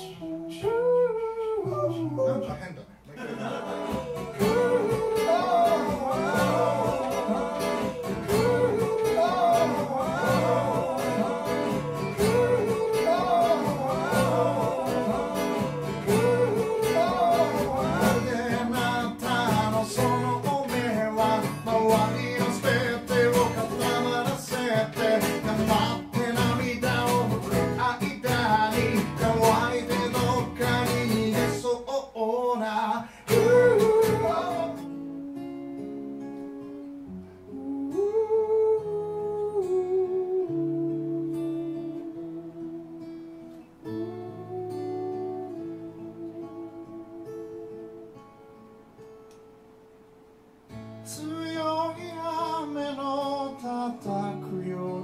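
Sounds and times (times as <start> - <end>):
acoustic guitar: 0.0 - 55.0
man singing: 3.7 - 43.0, 51.1 - 55.0.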